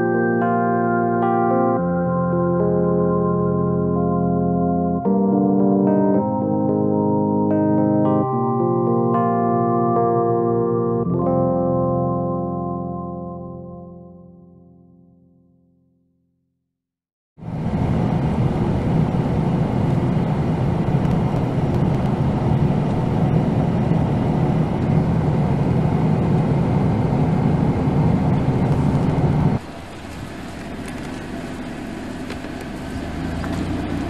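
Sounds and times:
car engine rumble: 17.4 - 34.0
road noise inside vehicle: 17.4 - 34.0.

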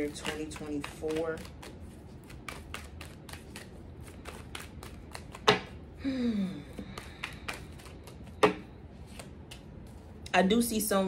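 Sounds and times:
cards being shuffled by hand: 0.0 - 5.7, 6.7 - 10.2
person humming: 6.0 - 6.8.

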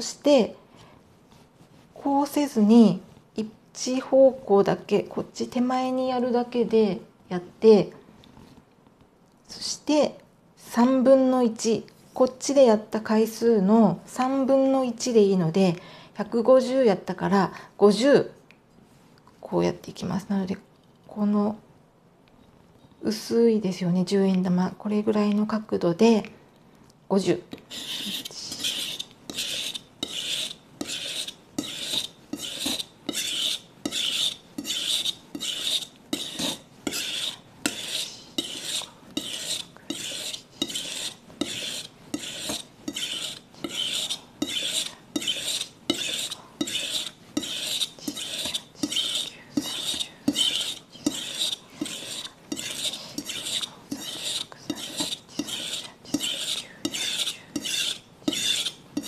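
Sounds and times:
knife scraping on whetstone: 27.5 - 59.0.

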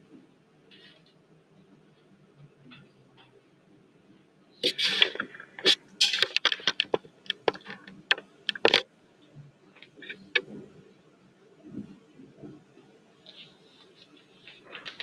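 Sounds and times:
paper rustling: 4.6 - 8.8, 13.3 - 15.0.

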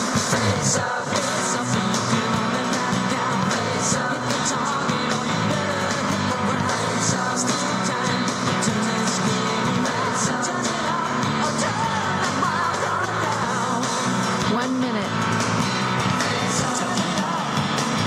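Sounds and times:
rock music with singer: 0.0 - 18.0.

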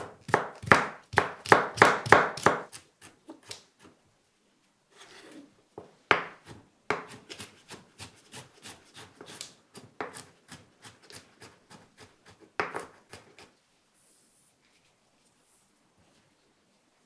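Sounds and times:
knife chopping on wooden board: 0.0 - 3.6, 6.1 - 13.5.

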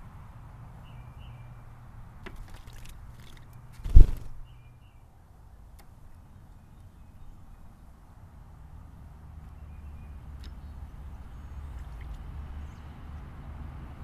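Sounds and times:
bird splashing in water: 2.3 - 4.4
wings whooshing: 3.8 - 4.4.

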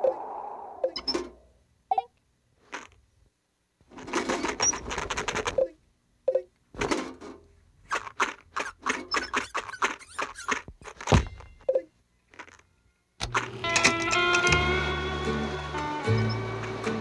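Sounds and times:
cartoon clicks and clacks: 4.3 - 6.5, 7.9 - 11.1
short squeaks: 7.9 - 11.6
sustained music chord: 14.3 - 17.0.

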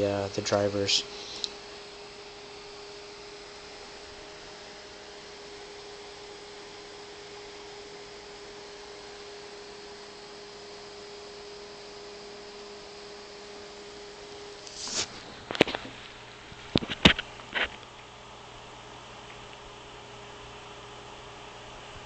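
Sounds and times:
electrical hum and cooling fan: 0.0 - 22.0
swish of handling: 14.7 - 15.2.

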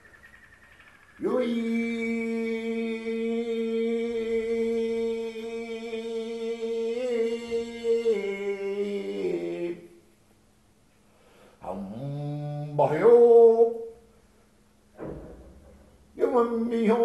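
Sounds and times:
man holding long vocal note: 1.2 - 9.9, 11.6 - 13.8.

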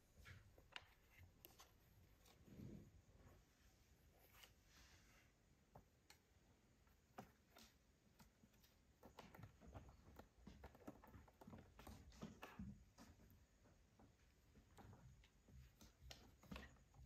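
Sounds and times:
kitten pawing a plastic toy: 6.8 - 17.0.

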